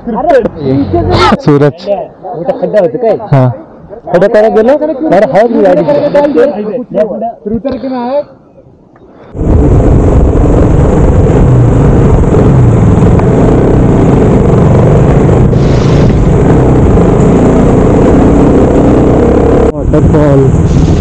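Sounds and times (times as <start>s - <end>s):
wind rumble on microphone: 9.3s - 21.0s
motorcycle engine running: 9.6s - 20.5s.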